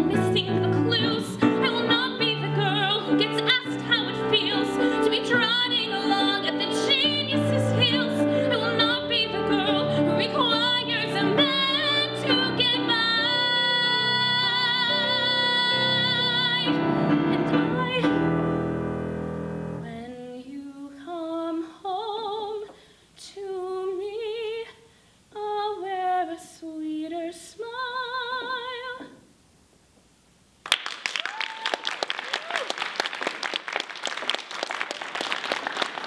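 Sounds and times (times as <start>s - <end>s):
woman singing with vibrato: 0.0s - 18.4s, 19.8s - 29.2s
piano: 0.0s - 22.7s
audience applause: 30.6s - 36.0s.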